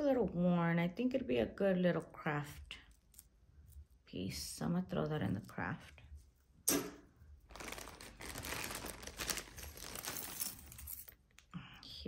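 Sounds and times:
plastic bag crinkling: 7.4s - 11.2s
metal jewelry clinking: 8.9s - 11.4s.

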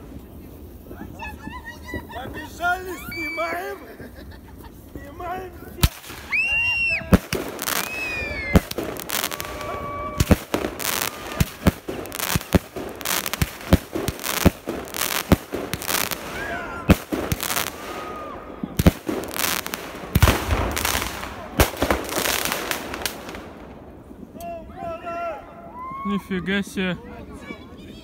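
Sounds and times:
firework bangs: 0.0s - 24.3s
fireworks crackling: 0.0s - 24.6s
firework whistles: 5.8s - 23.4s.

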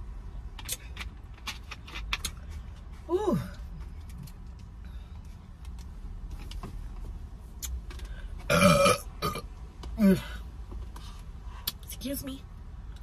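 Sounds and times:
woman burping: 8.5s - 9.4s.

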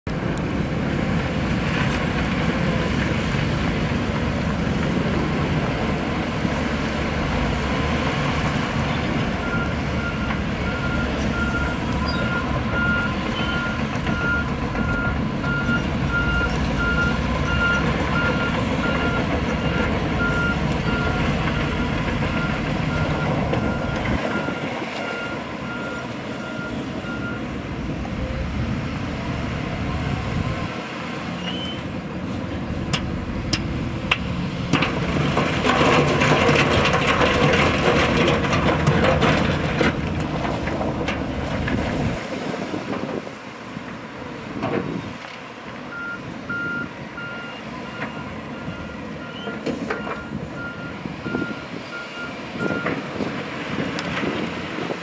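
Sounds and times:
heavy diesel engines running: 0.1s - 55.0s
reversing alarm beeping: 9.4s - 27.5s, 45.9s - 52.9s.

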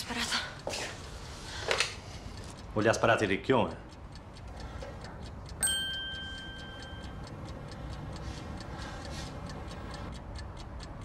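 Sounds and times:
fast steady ticking: 0.0s - 11.0s
bell-like chime: 5.6s - 7.0s.

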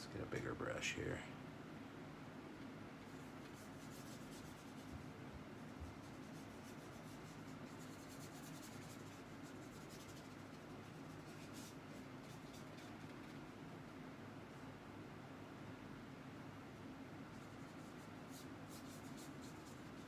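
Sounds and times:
brush swishing over paper: 3.0s - 13.5s, 17.3s - 20.0s.

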